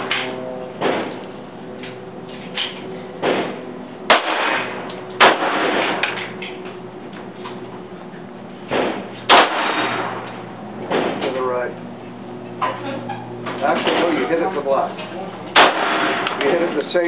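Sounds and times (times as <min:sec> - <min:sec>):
faint distant bangs: 0:00.0 - 0:17.0
pistol shots: 0:03.2 - 0:06.2, 0:08.7 - 0:10.2, 0:15.5 - 0:16.5.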